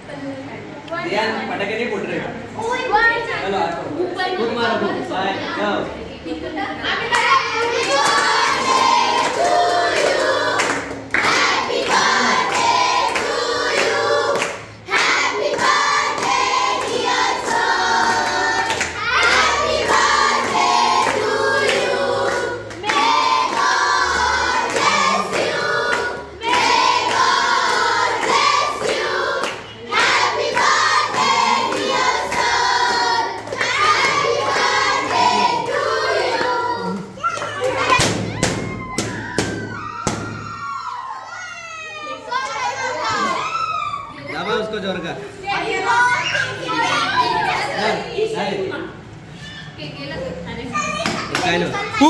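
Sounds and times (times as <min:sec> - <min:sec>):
children singing in chorus: 0:07.5 - 0:37.0.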